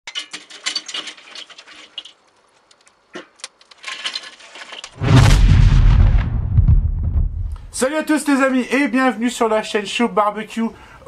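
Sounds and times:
charcoal crackling and popping: 0.1 - 7.8
deep rumble: 5.0 - 7.8.

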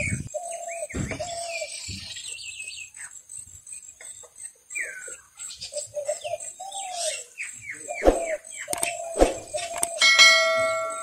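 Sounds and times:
birds chirping: 3.8 - 11.0
sharp clicks: 8.7 - 10.0
steady ringing tone: 10.0 - 11.0.

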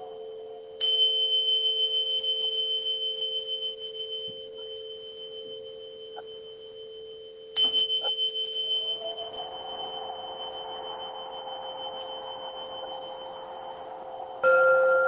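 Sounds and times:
tuning fork ringing: 0.0 - 15.0
low two-tone drone: 4.2 - 15.0.

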